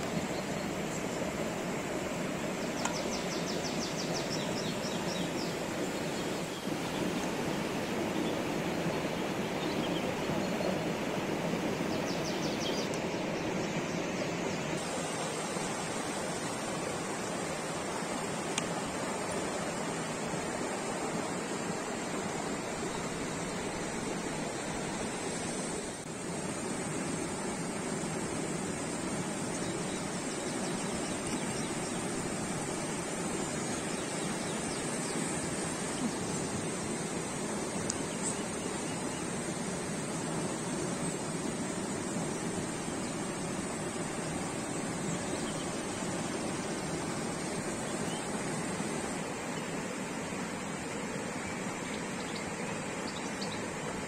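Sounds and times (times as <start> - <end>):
rushing hiss: 0.0 - 54.0.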